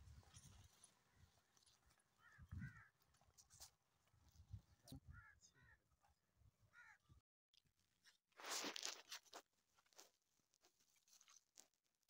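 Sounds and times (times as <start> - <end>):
bird caw: 2.2 - 3.0, 5.1 - 5.8, 6.7 - 7.2
crunchy rustling: 8.3 - 12.0.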